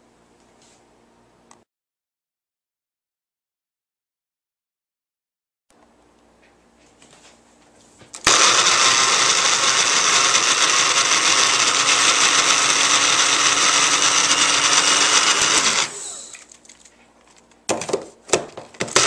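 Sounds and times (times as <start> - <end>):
blender chopping hard pieces: 8.2 - 16.4, 18.8 - 19.0.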